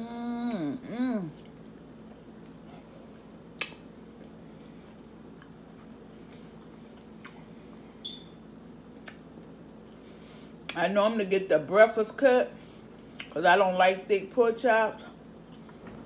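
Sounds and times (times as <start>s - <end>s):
person chewing: 1.1s - 7.8s, 9.0s - 10.8s
mouth clicks and lip smacks: 3.5s - 4.0s, 9.0s - 9.2s.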